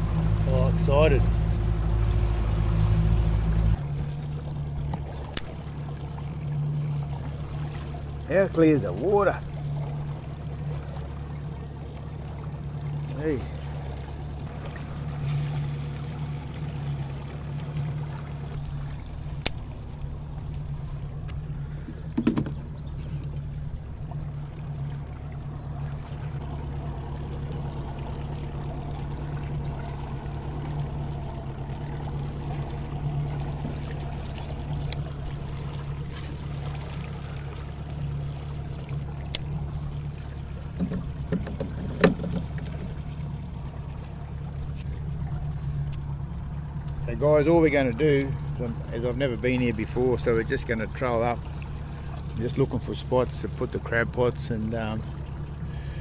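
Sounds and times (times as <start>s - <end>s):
outboard motor humming: 0.0s - 56.0s
knocks and clicks of gear: 3.9s - 5.6s, 19.3s - 20.2s, 21.2s - 23.6s, 27.2s - 36.4s, 39.0s - 47.0s.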